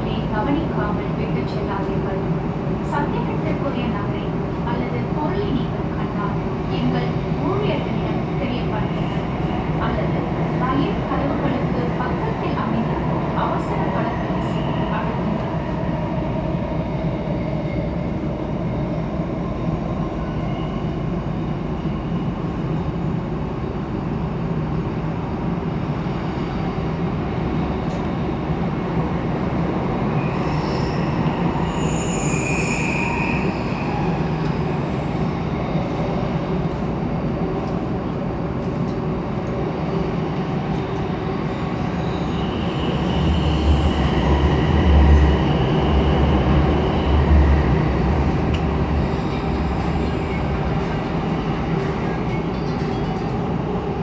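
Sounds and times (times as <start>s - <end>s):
train wheels rumbling on rail: 0.0s - 54.0s
high-pitched wheel squeals: 30.1s - 34.8s.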